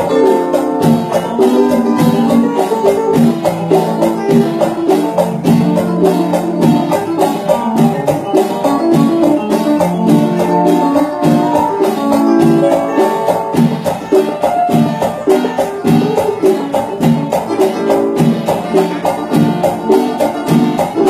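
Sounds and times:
electronic keyboard: 0:00.0 - 0:21.0
light percussion beat: 0:00.0 - 0:21.0
marimba notes: 0:00.0 - 0:21.0.

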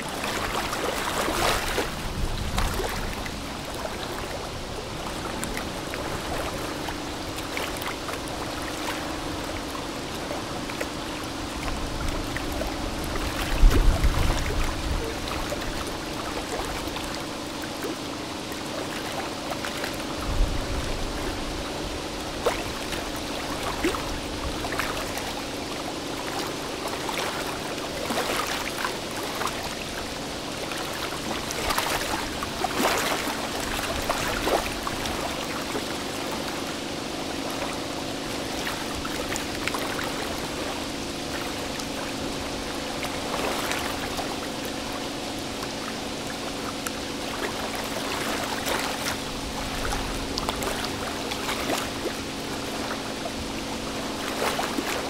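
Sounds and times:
low engine hum: 0:00.0 - 0:55.0
river water splashing against hulls: 0:00.0 - 0:55.0.

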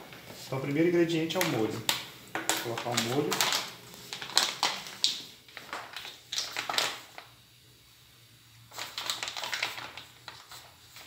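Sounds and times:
plastic pouch crinkling: 0:01.2 - 0:07.4, 0:08.6 - 0:11.0.

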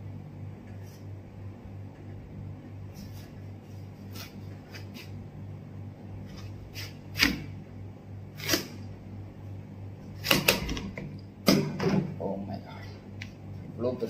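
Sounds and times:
steady low hum: 0:00.0 - 0:14.0
knife cracking watermelon rind: 0:06.3 - 0:07.5, 0:08.4 - 0:08.9.

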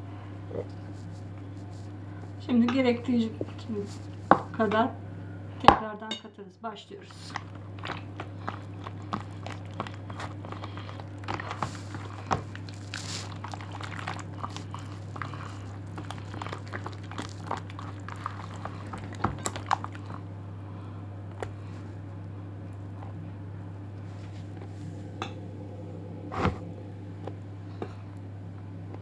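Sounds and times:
steady low hum: 0:00.0 - 0:29.0
hand squishing wet batter: 0:07.1 - 0:20.3.

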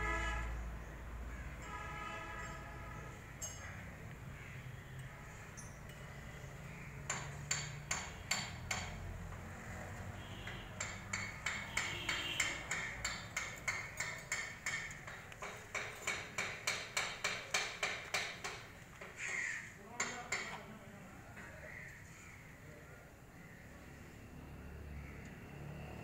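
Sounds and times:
hammer striking metal: 0:07.1 - 0:09.0, 0:10.7 - 0:18.7.

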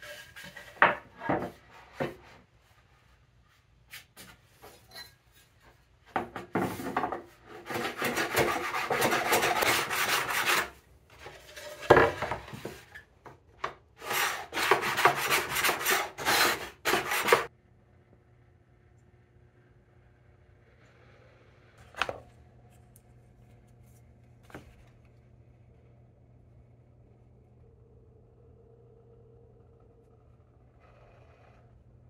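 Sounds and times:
hand plane trimming wood: 0:07.5 - 0:10.8, 0:14.0 - 0:17.5.

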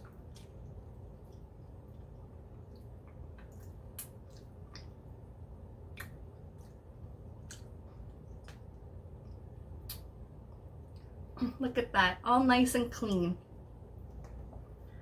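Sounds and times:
low room hum: 0:00.0 - 0:15.0
wet mouth smacks and squishes: 0:02.6 - 0:05.1, 0:05.9 - 0:10.1.

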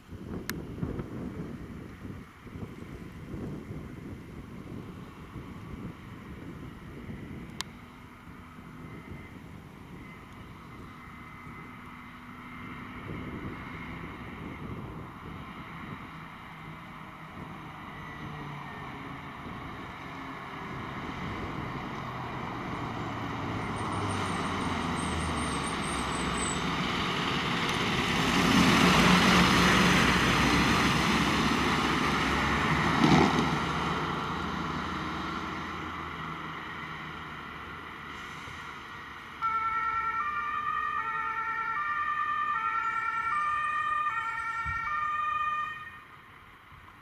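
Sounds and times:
fire engine driving past: 0:00.0 - 0:47.0
two-tone emergency siren: 0:08.6 - 0:13.5, 0:17.3 - 0:19.7, 0:39.4 - 0:46.2.

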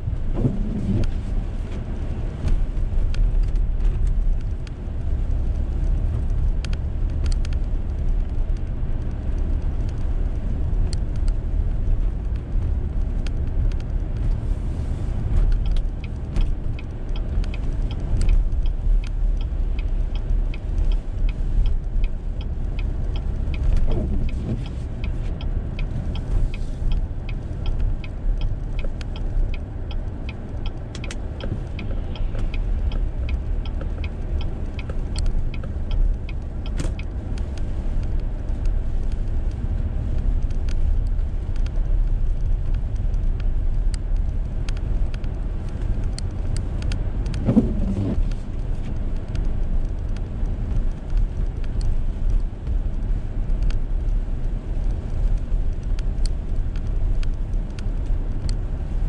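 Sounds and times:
light irregular ticks: 0:00.0 - 0:59.0
tyres and engine rumble: 0:00.0 - 0:59.0.

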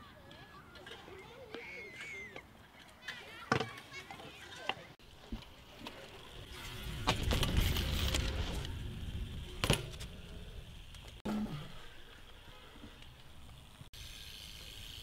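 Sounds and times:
bike tyres rolling on concrete: 0:00.0 - 0:15.0
bike clacking: 0:00.3 - 0:11.2
metallic clack of bike landing: 0:09.6 - 0:10.1.

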